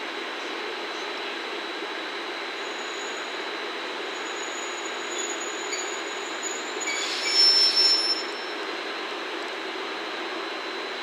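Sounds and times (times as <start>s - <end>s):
train wheels squealing on rails: 2.5s - 8.9s.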